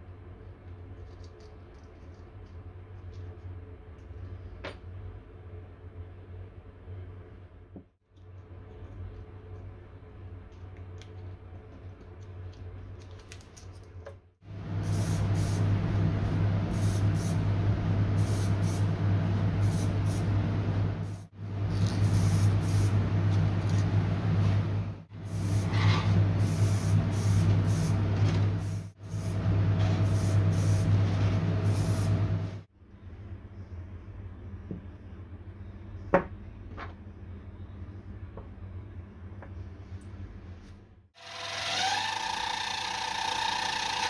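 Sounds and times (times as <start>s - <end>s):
steady low hum: 0.0s - 41.1s
spray paint can hissing: 14.8s - 15.6s, 16.7s - 17.4s, 18.2s - 18.9s, 19.6s - 20.3s, 21.1s - 22.9s, 26.4s - 28.0s, 30.0s - 30.9s.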